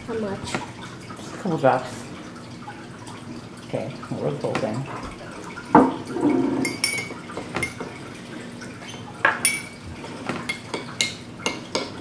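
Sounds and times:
metal spoon clinking against glass: 6.6 - 7.1.

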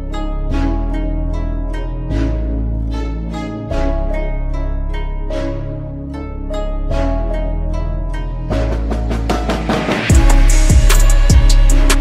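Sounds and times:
deep held bass: 0.0 - 12.0
plucked string notes: 0.0 - 12.0.

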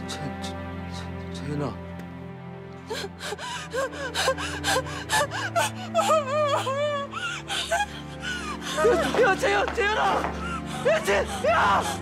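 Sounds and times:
soft music score: 0.0 - 12.0
woman sobbing and wailing: 2.8 - 12.0.

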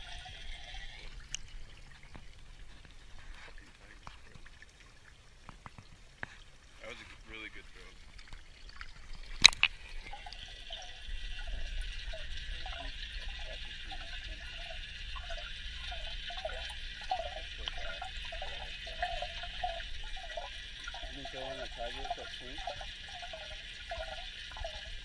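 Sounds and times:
faint underwater warbling: 0.0 - 25.0
muffled underwater hiss and rumble: 0.0 - 25.0
camera splashing into water: 9.3 - 9.9.

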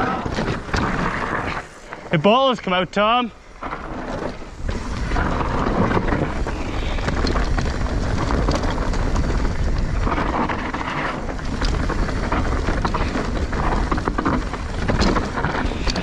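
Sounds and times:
bike clicks and knocks: 0.0 - 2.1, 3.5 - 16.0
wind on microphone: 3.8 - 16.0.

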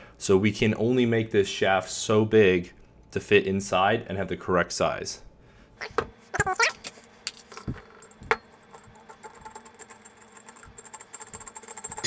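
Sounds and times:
metal tools knocking and clinking: 7.5 - 12.0.

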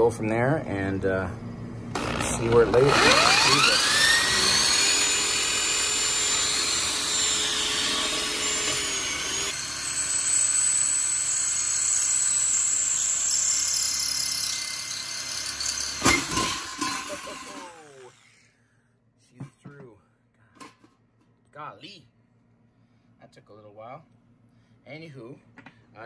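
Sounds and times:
electric drill boring into steel: 1.9 - 18.5.

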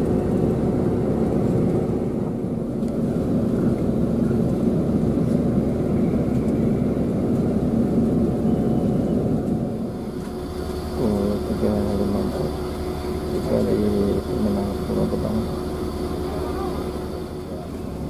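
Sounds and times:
coach engine drone from inside: 0.0 - 18.0.

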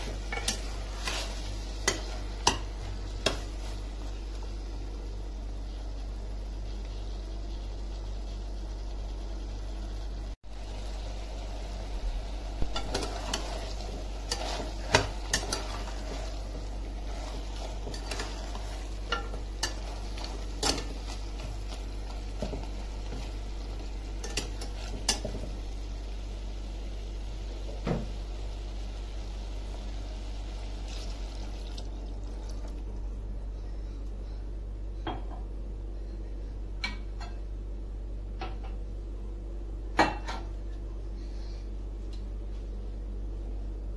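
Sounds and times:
meat sizzling: 0.0 - 33.0
spatula scraping in pot: 12.7 - 21.5.

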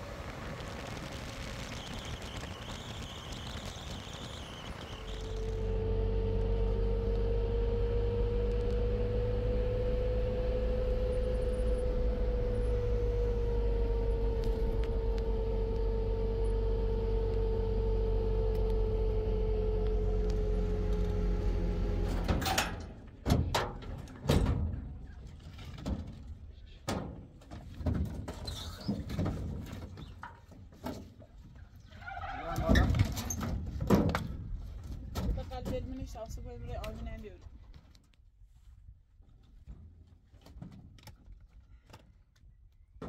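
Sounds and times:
machine motor humming and whining: 3.4 - 22.3.

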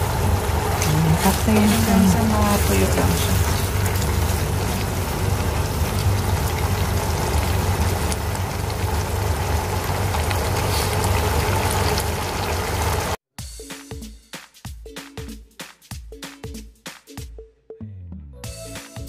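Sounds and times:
meat sizzling in a frying pan: 0.0 - 13.2.

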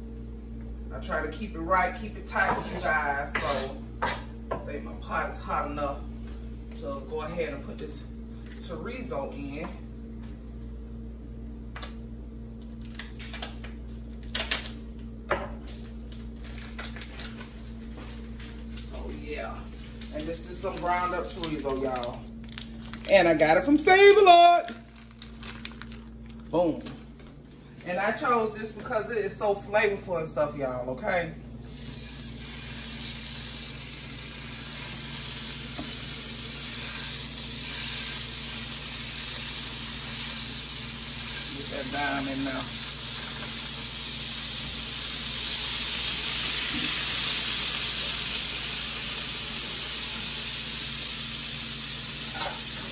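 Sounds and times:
steady low hum: 0.0 - 52.9
plastic package crinkling: 16.1 - 17.7, 19.8 - 23.4, 24.6 - 27.4
meat sizzling in a skillet: 31.7 - 52.9.

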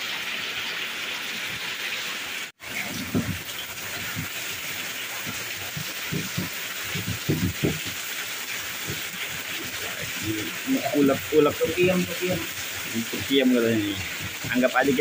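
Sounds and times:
heavy rain: 0.0 - 15.0
stone pestle grinding in mortar: 5.2 - 8.0, 13.7 - 15.0.

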